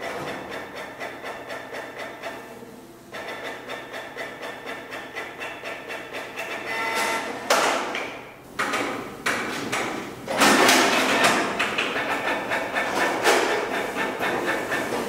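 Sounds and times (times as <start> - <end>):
inkjet printers clunking and rattling: 0.0 - 2.4, 3.2 - 15.0.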